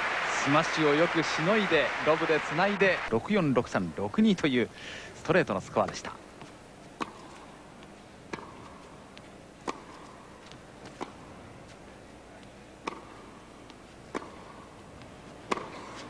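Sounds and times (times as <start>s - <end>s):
tennis ball struck by rackets: 7.0s - 7.4s, 8.3s - 11.4s, 12.4s - 16.0s.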